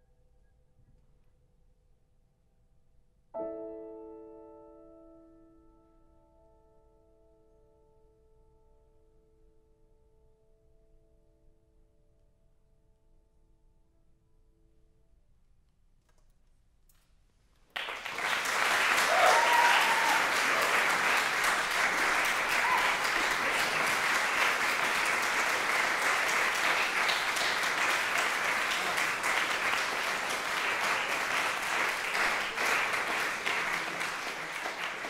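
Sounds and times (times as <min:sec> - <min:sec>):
audience applause: 0:17.7 - 0:35.0.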